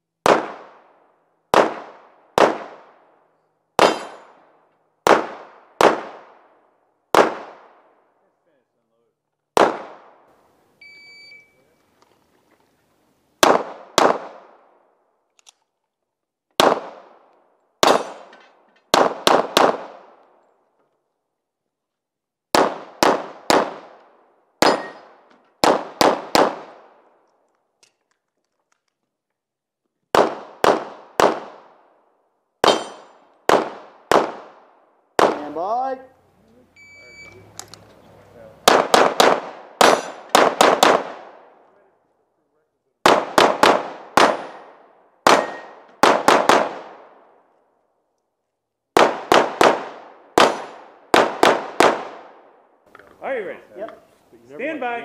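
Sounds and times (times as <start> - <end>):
pistol gunshots: 0.2 - 3.1, 3.8 - 6.5, 7.1 - 8.0, 9.6 - 10.4, 13.4 - 14.7, 16.6 - 20.3, 22.5 - 27.0, 30.1 - 31.9, 32.6 - 35.7, 38.6 - 41.6, 43.0 - 47.4, 48.9 - 52.6
short high beep: 10.8 - 11.8, 36.8 - 37.4.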